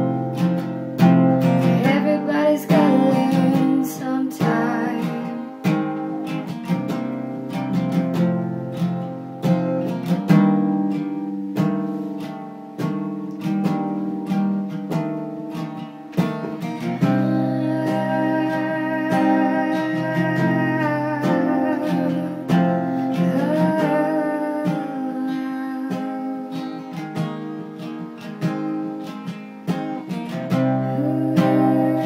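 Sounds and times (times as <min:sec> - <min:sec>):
acoustic guitar strumming: 0:00.0 - 0:32.0
person singing: 0:01.4 - 0:05.9, 0:16.3 - 0:27.3, 0:30.0 - 0:32.0.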